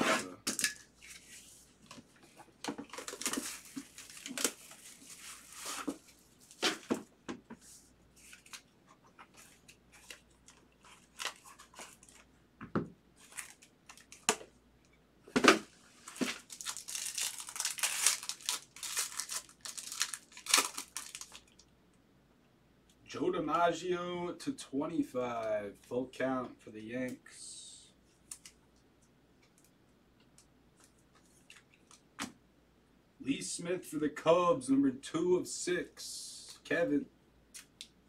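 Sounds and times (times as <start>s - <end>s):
cardboard box and cards rustling: 1.0s - 7.1s, 9.2s - 12.3s
foil wrapper crinkling and tearing: 2.9s - 6.9s, 10.0s - 12.3s, 13.2s - 14.4s, 16.0s - 21.6s.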